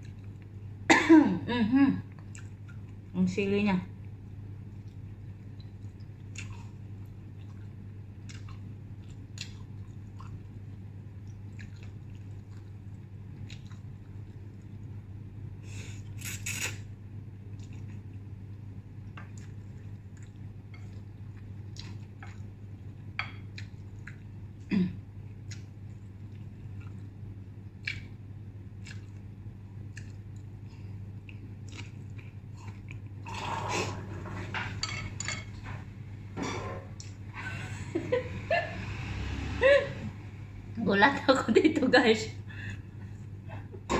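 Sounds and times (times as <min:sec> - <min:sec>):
steady low hum: 0:00.0 - 0:43.9
chewing: 0:02.1 - 0:03.0, 0:04.0 - 0:14.9, 0:17.5 - 0:24.6, 0:25.3 - 0:33.6.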